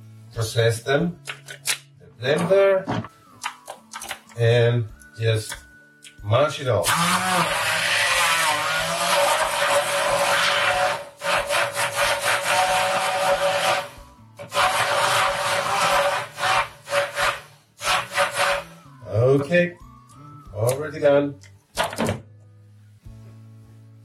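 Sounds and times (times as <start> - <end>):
immersion blender motor: 6.8 - 19.0.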